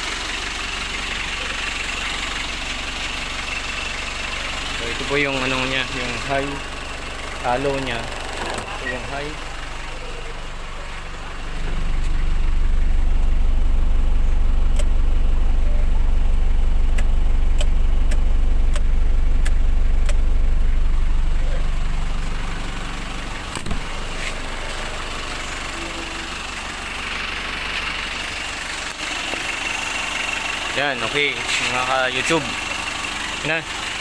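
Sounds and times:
van engine idling: 0.0 - 34.0
sharp clicks: 16.9 - 20.2.

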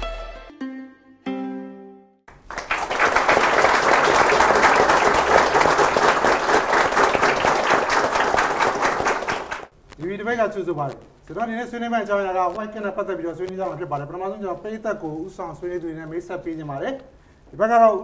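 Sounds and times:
studio audience applauding: 2.3 - 9.7.

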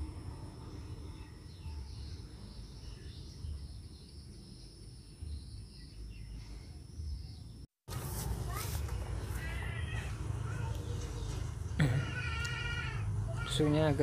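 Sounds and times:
birds chirping: 0.6 - 7.7.

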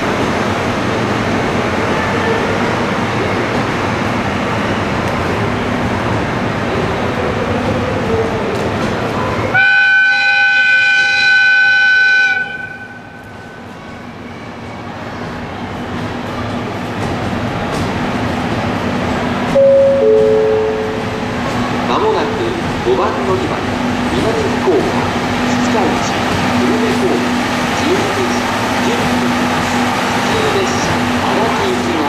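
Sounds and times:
train rolling with steady rumble: 0.0 - 32.0
locomotive whistle: 9.5 - 13.1.

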